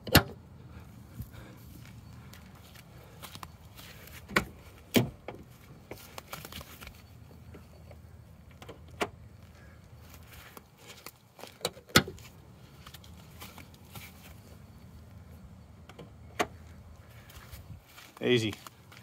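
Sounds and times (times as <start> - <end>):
fuel filler door clicking shut: 0.0 - 0.4, 8.5 - 9.2.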